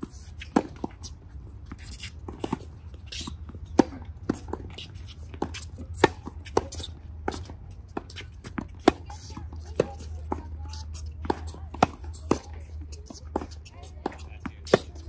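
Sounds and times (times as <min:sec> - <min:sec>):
tennis balls hit by racquets: 0:00.0 - 0:15.0
distant tennis hits: 0:02.0 - 0:15.0.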